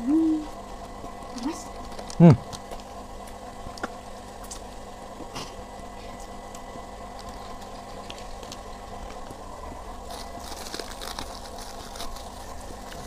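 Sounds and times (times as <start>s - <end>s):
low room hum: 0.0s - 13.0s
plastic spoon scraping rice: 10.1s - 13.0s.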